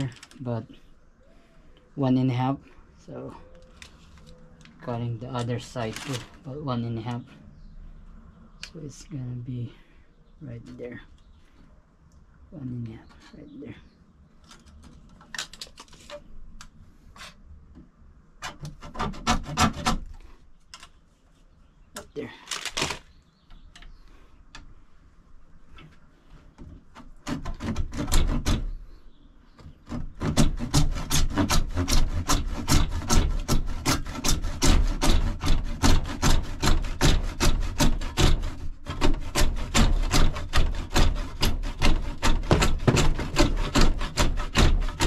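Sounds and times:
hand saw cutting plastic pipe: 18.4s - 20.4s, 26.8s - 28.8s, 29.8s - 45.0s.

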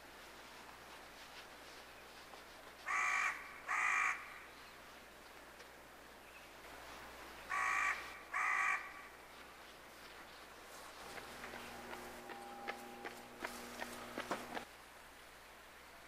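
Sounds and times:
crow cawing: 2.9s - 4.4s, 7.5s - 9.1s.

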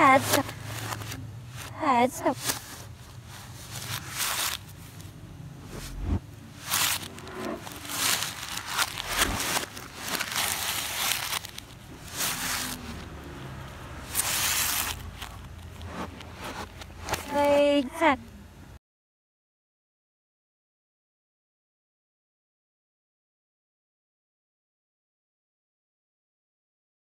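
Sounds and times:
wrapping paper rustling and tearing: 0.0s - 5.1s, 6.5s - 17.4s.

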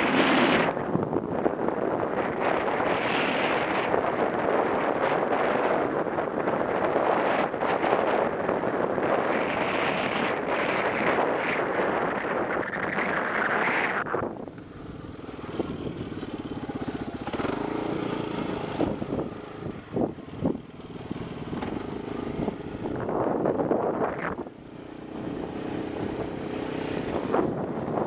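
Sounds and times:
wind noise on microphone: 0.0s - 28.0s
motorcycle engine running: 14.3s - 28.0s.

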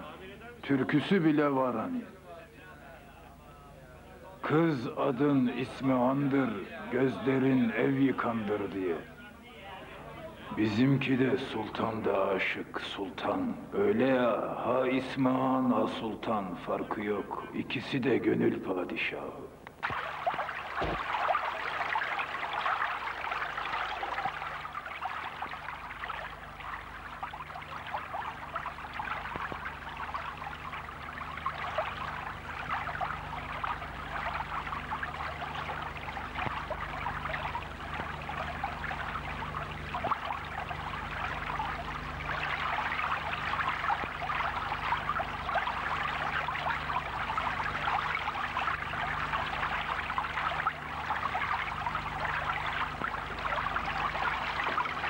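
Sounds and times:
water pouring and splashing: 19.8s - 55.0s.

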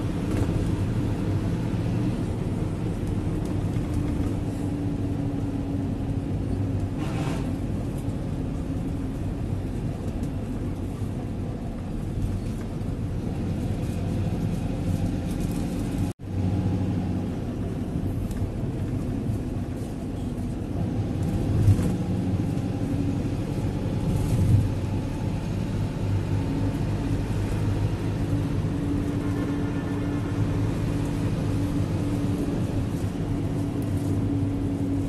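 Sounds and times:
vehicle engine hum: 0.0s - 35.0s.

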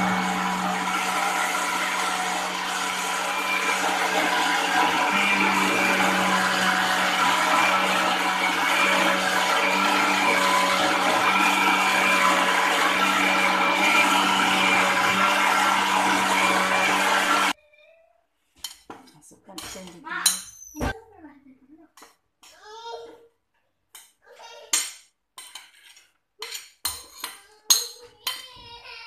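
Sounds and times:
electric blender motor humming: 0.0s - 17.6s.

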